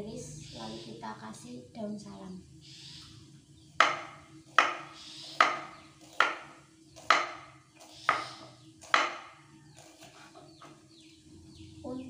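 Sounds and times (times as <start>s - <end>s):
knife striking cutting board: 3.8s - 10.8s.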